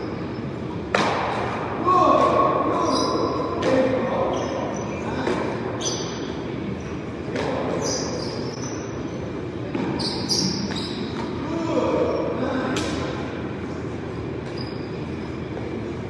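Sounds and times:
paddles hitting rubber ball: 0:00.8 - 0:02.6.

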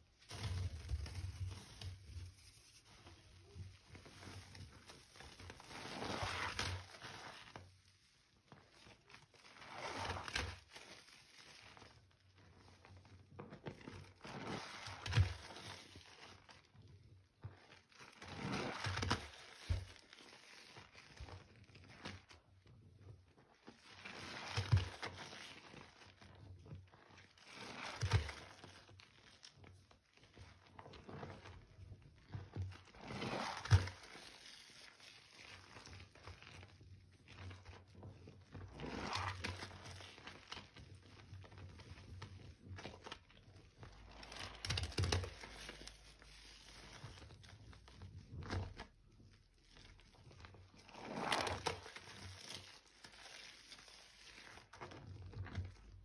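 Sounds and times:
hand mashing wet paste in water: 0:30.7 - 0:36.5.

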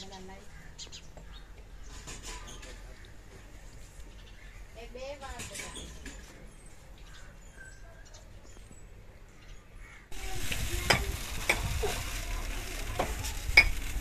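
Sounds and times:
steady hiss: 0:10.1 - 0:14.0
jars and pots clinking: 0:13.0 - 0:13.9.

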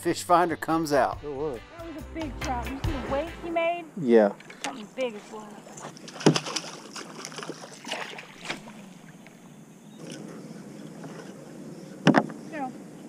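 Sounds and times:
fish splashing at surface: 0:04.4 - 0:09.2.

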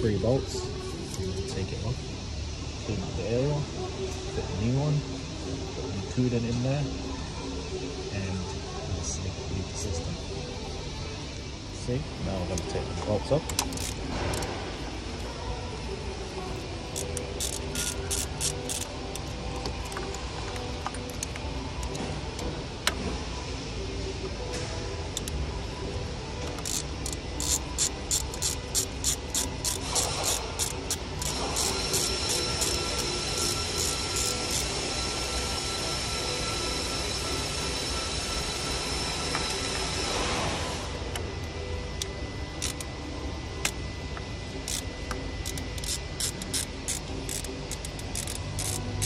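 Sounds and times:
steady high whine: 0:00.0 - 0:49.0
ratchet pawl clicking: 0:13.5 - 0:14.5, 0:16.9 - 0:20.2, 0:26.4 - 0:35.2, 0:41.4 - 0:42.9, 0:44.6 - 0:49.0.

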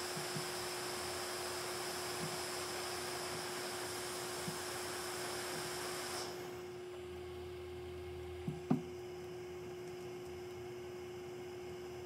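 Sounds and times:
hot air blower hissing: 0:00.0 - 0:07.0
steady hum: 0:00.0 - 0:12.0.

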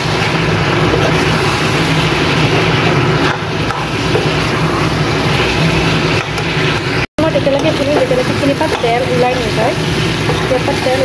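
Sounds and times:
food sizzling in oil: 0:00.0 - 0:11.0.

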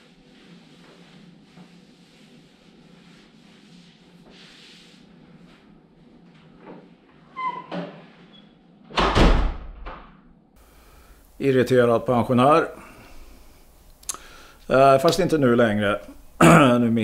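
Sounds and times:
mop swishing on tiled floor: 0:00.0 - 0:07.2
short squeak: 0:07.3 - 0:08.5
door slamming shut: 0:08.9 - 0:10.2.

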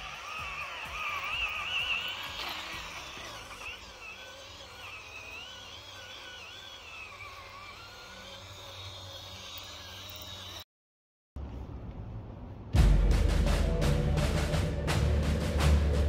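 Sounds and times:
toy tank motor whining: 0:00.0 - 0:10.7.

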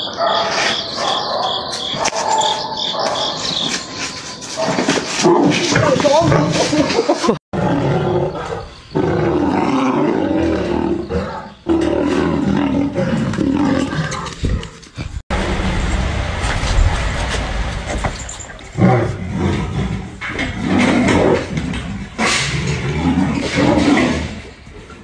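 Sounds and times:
big cats roaring and growling: 0:04.5 - 0:25.0
low rumbling: 0:15.0 - 0:22.2.

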